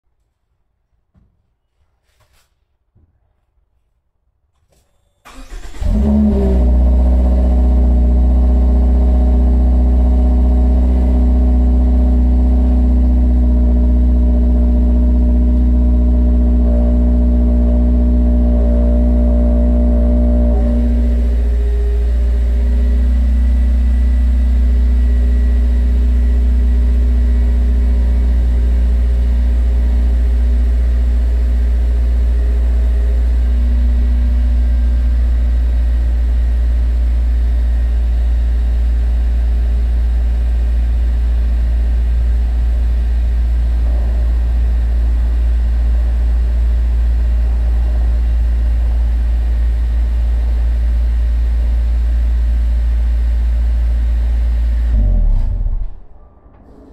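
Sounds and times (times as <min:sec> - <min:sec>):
car engine idling exhaust rumble: 0:05.3 - 0:56.9.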